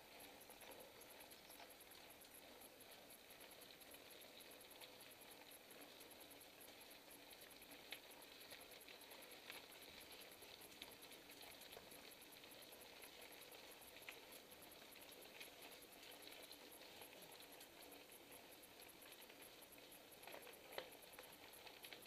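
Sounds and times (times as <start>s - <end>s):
mountain bike rolling and rattling: 0.0s - 22.0s.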